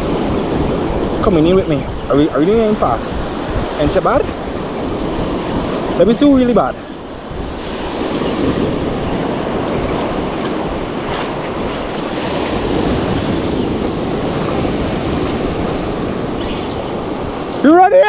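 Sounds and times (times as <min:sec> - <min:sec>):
surf washing up beach: 0:00.0 - 0:18.0
fishing reel cranking: 0:15.6 - 0:17.8.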